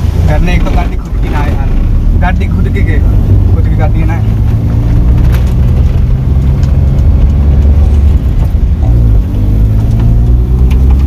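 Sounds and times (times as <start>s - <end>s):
car engine rumbling: 0.0s - 11.0s.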